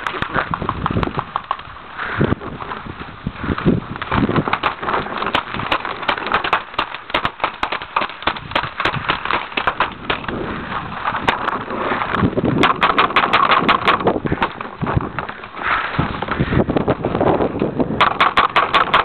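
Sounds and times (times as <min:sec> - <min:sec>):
paintball markers popping: 0:00.0 - 0:01.8, 0:04.0 - 0:10.4, 0:11.0 - 0:15.6, 0:17.6 - 0:19.0.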